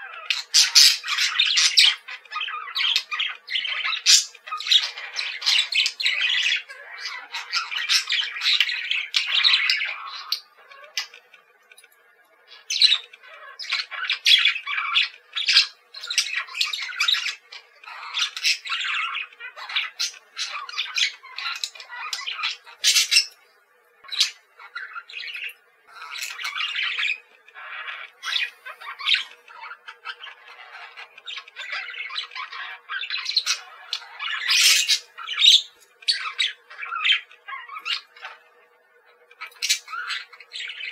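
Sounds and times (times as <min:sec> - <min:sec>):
parakeets calling: 0:00.0 - 0:40.9.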